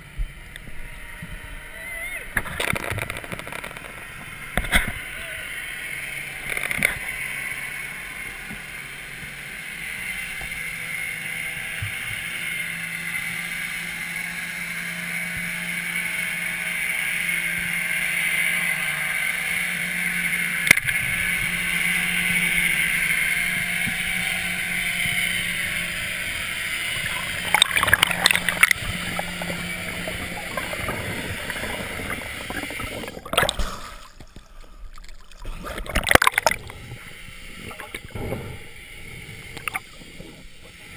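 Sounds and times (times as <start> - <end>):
low steady hum: 0.0 - 40.9
bubbling: 26.8 - 40.9
underwater hiss: 26.9 - 40.9.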